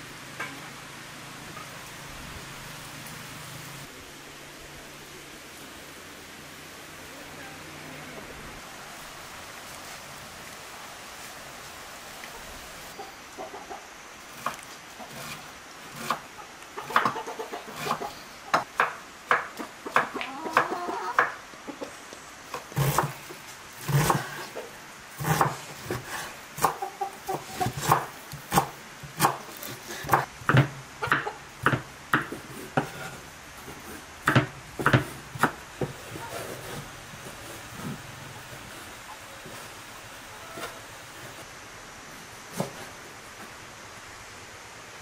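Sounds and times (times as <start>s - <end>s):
chicken clucking: 12.9s - 14.0s, 16.4s - 18.6s, 19.6s - 22.2s, 26.6s - 28.0s, 36.1s - 36.6s
knife chopping on wooden board: 25.2s - 33.1s, 34.2s - 36.2s.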